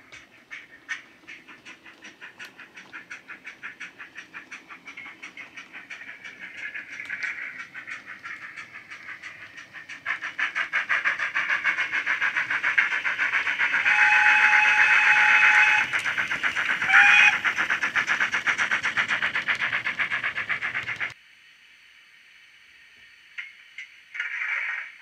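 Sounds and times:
model steam engine chuffs: 0.0s - 21.2s
train whistle: 13.7s - 15.9s, 16.8s - 17.5s.

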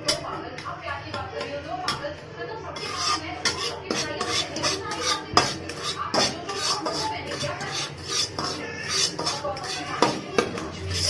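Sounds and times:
metal spatula scraping a pan: 2.7s - 11.0s.

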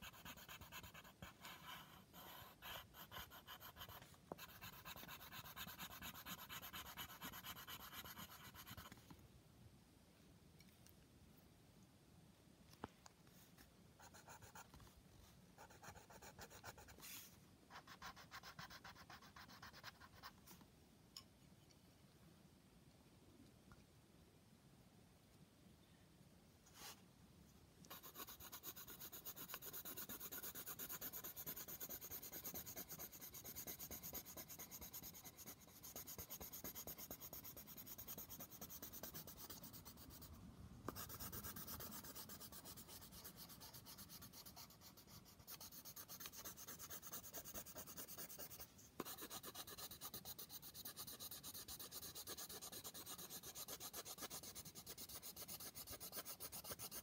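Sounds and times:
pencil scratching on paper: 0.0s - 9.0s, 14.0s - 14.7s, 15.6s - 20.4s, 27.9s - 40.3s, 40.9s - 57.0s.

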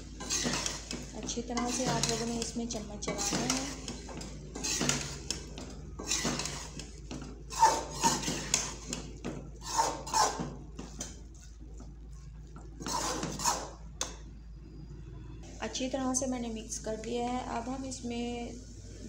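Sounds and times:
metal spoon scraping steel pan: 0.0s - 10.5s, 12.8s - 13.8s.

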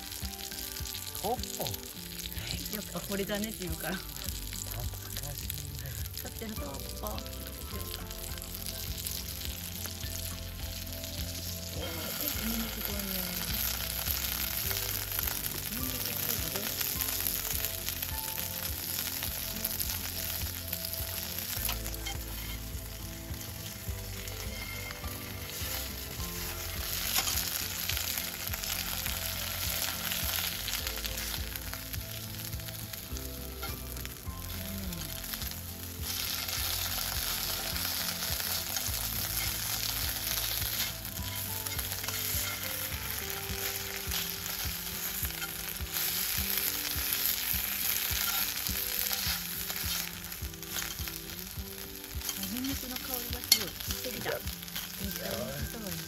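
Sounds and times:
food sizzling in a frying pan: 0.0s - 56.0s
metal tongs turning food: 8.4s - 56.0s.

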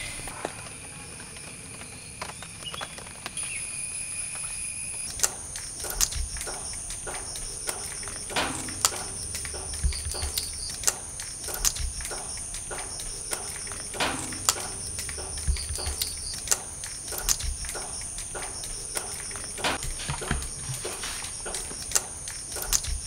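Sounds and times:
insect chorus trilling: 0.0s - 23.0s
plant stems snapping: 5.1s - 23.0s.

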